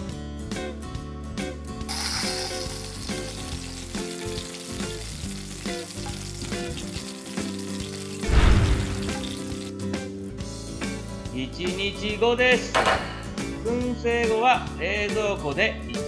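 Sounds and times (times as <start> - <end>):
background guitar music: 0.0 - 16.0
fat sizzling and bubbling: 1.9 - 9.8
loud low thump: 8.3 - 9.3.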